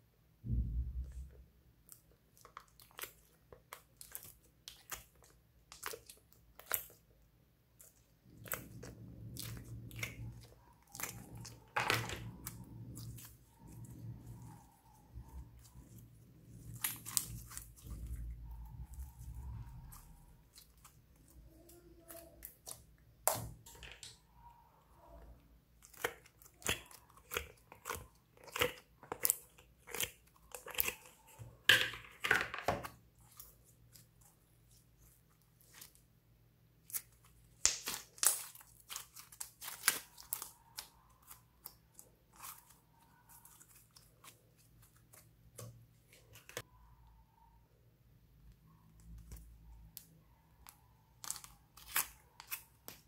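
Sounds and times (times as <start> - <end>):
slime squelching and crackling: 0.5 - 47.5, 48.5 - 53.0.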